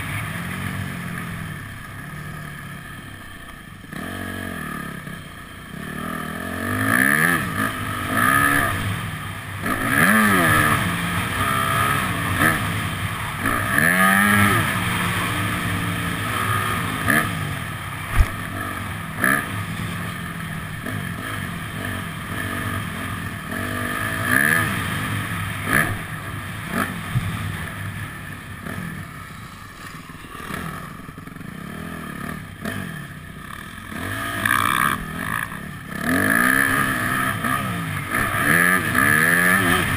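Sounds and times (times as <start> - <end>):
dirt bike engine revving: 3.8 - 39.9.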